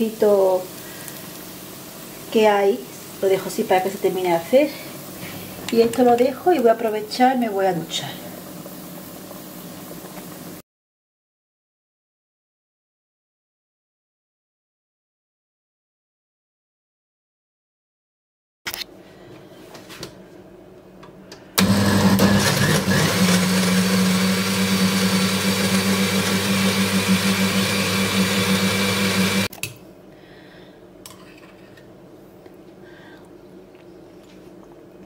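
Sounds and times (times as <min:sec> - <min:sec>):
blender running: 0:21.6 - 0:29.5.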